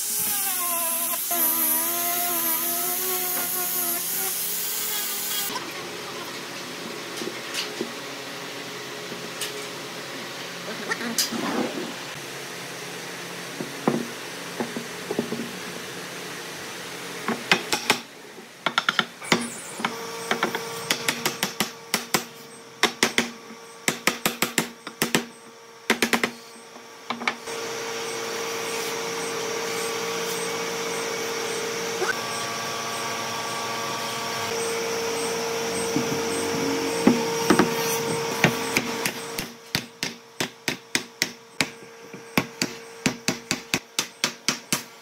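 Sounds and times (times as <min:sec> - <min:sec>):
machine drone with held tone: 0:27.4 - 0:39.4.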